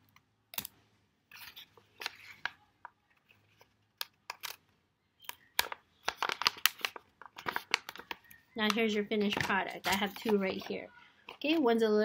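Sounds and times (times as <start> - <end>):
paper rustling: 5.6 - 11.7.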